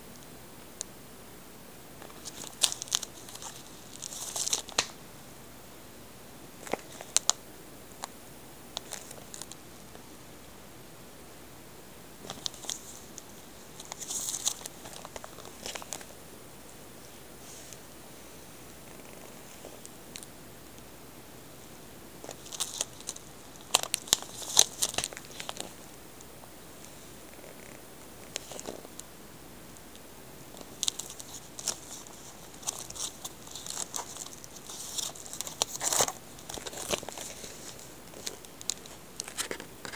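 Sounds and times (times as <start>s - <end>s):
plastic sleeves crinkling: 2.0s - 5.0s, 6.6s - 7.4s, 8.8s - 9.6s, 12.2s - 16.1s, 22.2s - 25.8s, 28.3s - 29.0s, 30.5s - 39.9s.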